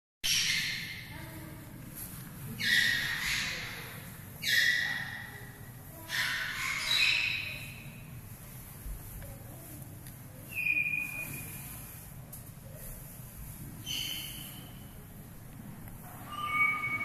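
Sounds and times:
shrill animal calls with echo: 0.3s - 1.1s, 2.6s - 7.9s, 16.2s - 17.0s.

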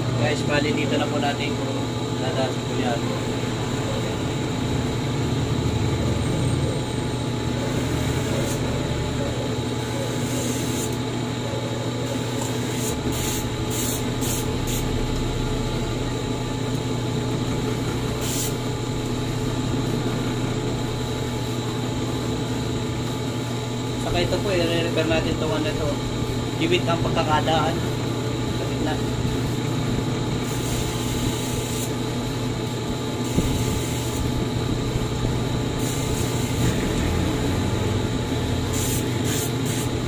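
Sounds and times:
scissor blade grinding: 10.1s - 11.0s.

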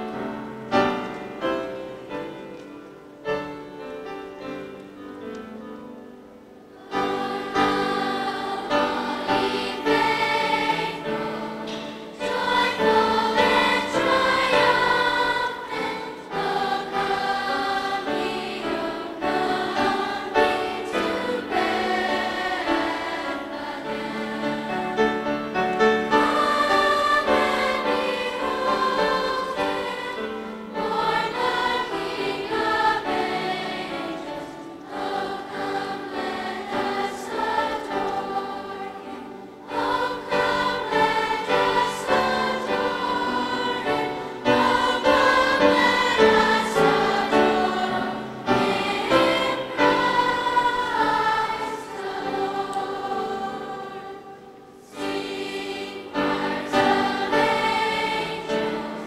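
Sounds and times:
children's choir singing: 0.0s - 59.0s.

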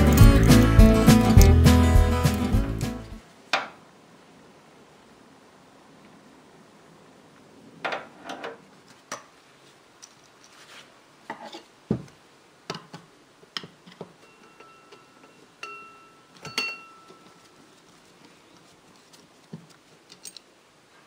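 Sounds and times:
small metal clinks: 14.2s - 17.5s, 20.1s - 20.5s.

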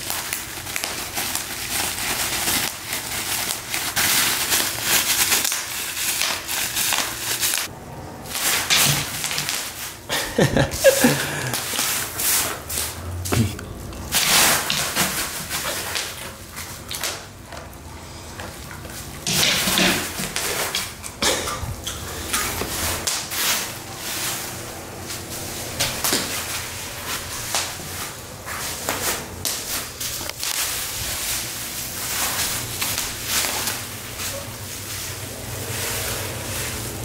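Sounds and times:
bubble wrap crinkling: 0.0s - 13.0s, 13.8s - 21.0s, 21.7s - 37.0s.

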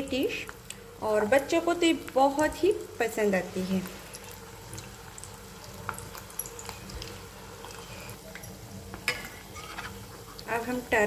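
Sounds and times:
cutlets deep-frying in oil: 0.0s - 11.0s.

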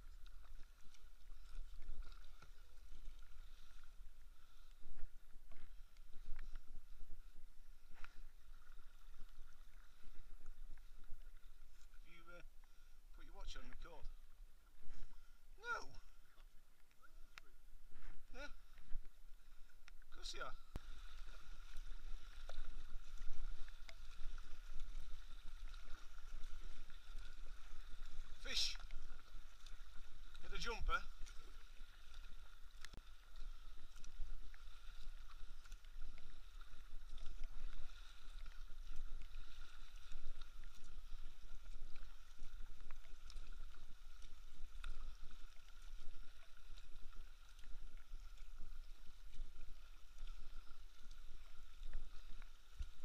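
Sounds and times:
water splashing and dripping: 0.0s - 6.9s, 19.8s - 53.0s
paddle dipping through water: 0.0s - 53.0s.

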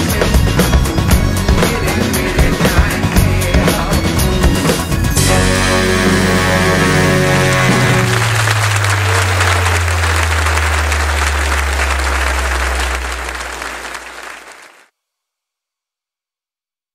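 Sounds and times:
low bass note ringing: 5.2s - 13.6s
audience applauding: 7.3s - 14.9s.

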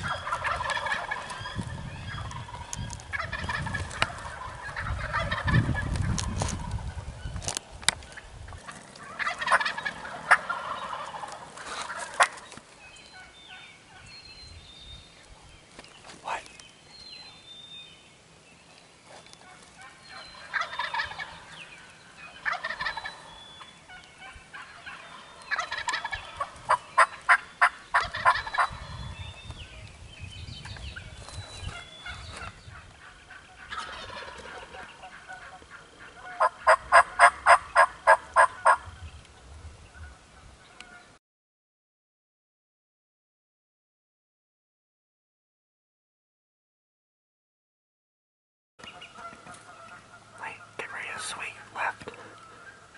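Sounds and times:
turkeys calling: 0.0s - 14.6s, 18.7s - 29.9s, 30.6s - 41.2s, 48.8s - 52.9s.

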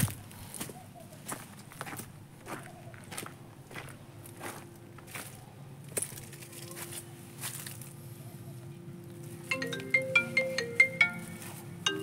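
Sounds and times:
low steady hum: 3.4s - 12.0s
marimba phone ringtone: 9.5s - 12.0s.

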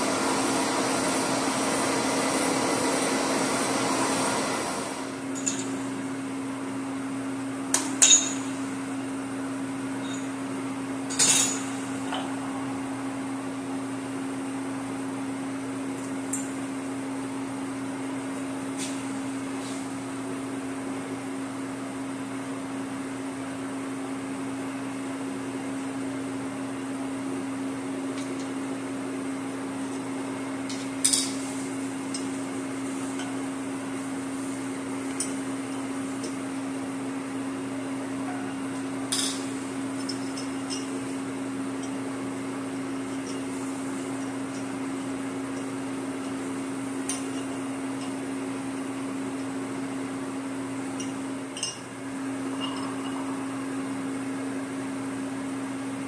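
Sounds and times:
machine hum: 0.0s - 18.6s, 27.0s - 56.0s.

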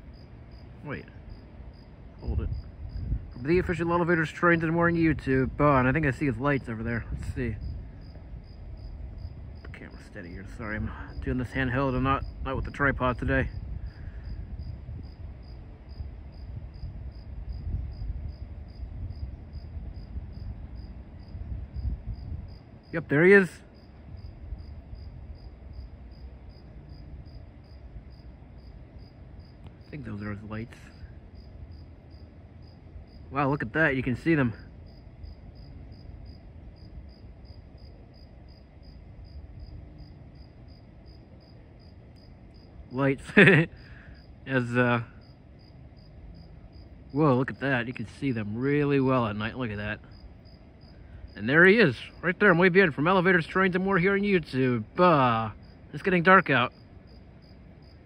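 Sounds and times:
crickets chirping: 0.0s - 58.0s
low background rumble: 0.0s - 58.0s.

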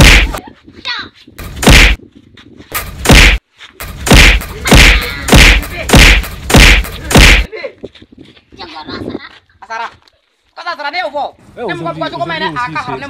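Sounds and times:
loud whacks of blows: 0.0s - 0.4s, 1.4s - 2.0s, 2.8s - 7.5s.

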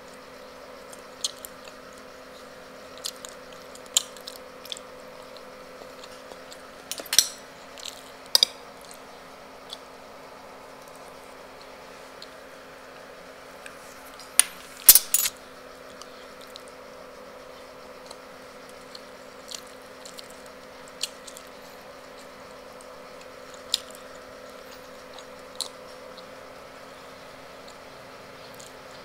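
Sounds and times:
steady low hum: 0.0s - 29.0s
fork clinking on plate: 6.9s - 7.4s.

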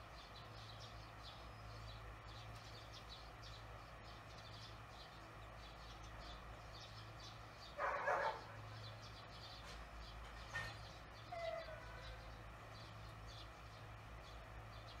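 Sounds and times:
low steady hum: 0.0s - 15.0s
distant dog barking: 7.7s - 8.8s, 10.5s - 12.3s.

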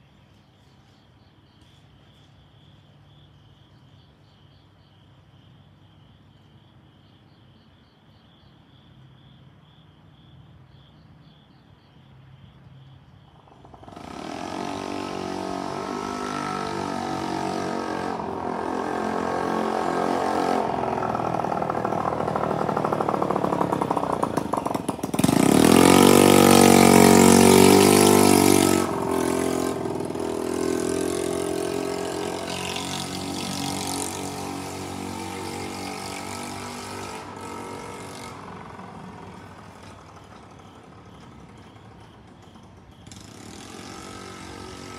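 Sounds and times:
insect chirping: 0.0s - 44.9s
train passing: 13.7s - 44.9s.

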